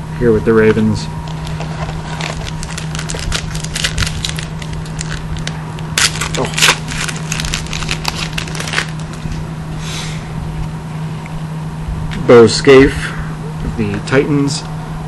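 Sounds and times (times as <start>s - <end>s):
low hum: 0.0s - 15.0s
foil pack crinkling: 1.3s - 9.4s.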